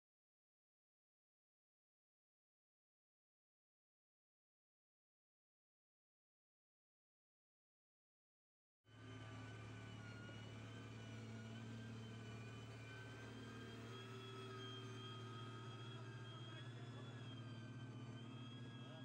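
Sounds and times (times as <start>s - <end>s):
engine humming with faint whine: 9.0s - 19.0s.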